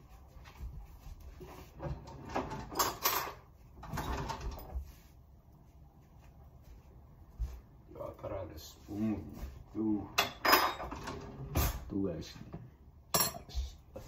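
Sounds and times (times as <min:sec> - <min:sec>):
kitchen drawer opening: 0:01.7 - 0:04.8, 0:10.3 - 0:11.9
cutlery rattling: 0:02.4 - 0:03.4.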